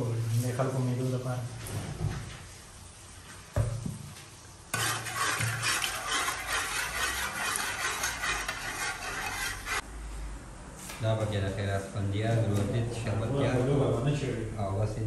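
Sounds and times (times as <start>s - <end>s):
metal spoon scraping a pot: 4.7s - 9.8s.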